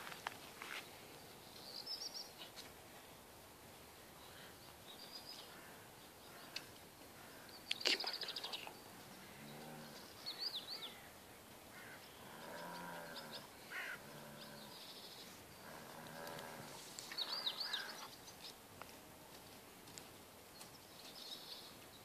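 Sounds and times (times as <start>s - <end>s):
faint bird chirps: 17.1s - 18.6s.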